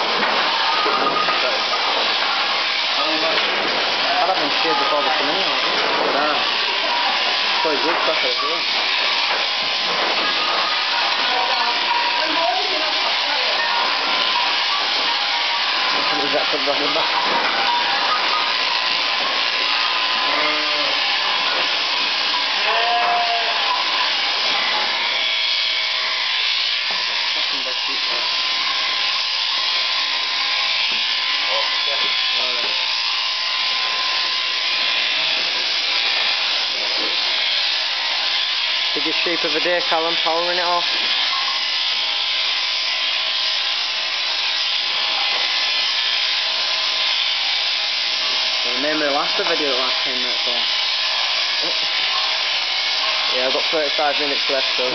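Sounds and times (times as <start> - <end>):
electric shears buzzing: 0.0 - 54.9
sheep bleating: 17.6 - 25.8.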